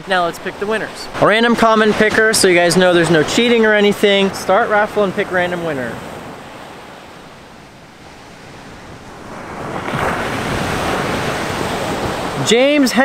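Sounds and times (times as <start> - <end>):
ocean surf on a beach: 0.0 - 13.0.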